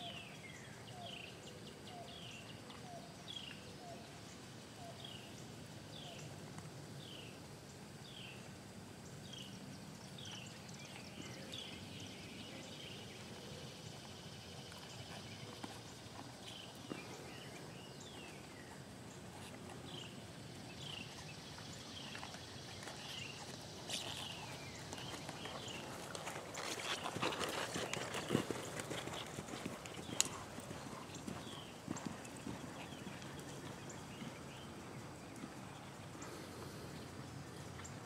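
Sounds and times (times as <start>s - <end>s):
horse hoofbeats on sand: 22.0s - 34.8s.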